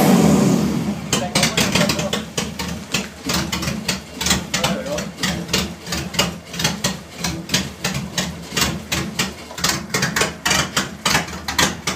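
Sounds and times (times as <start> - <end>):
engine running with uneven clatter: 0.0 - 11.9.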